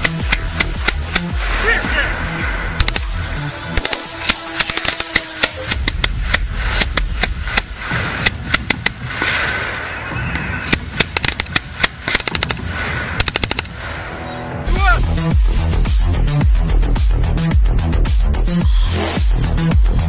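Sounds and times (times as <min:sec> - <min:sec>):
electronic music with heavy bass: 0:00.0 - 0:04.6, 0:14.3 - 0:20.0
machine gun firing bursts: 0:00.0 - 0:09.0, 0:10.7 - 0:13.8.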